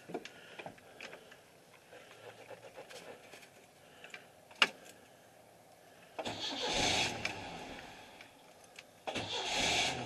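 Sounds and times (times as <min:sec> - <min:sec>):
faint handling ticks and rustle: 0:00.0 - 0:06.2.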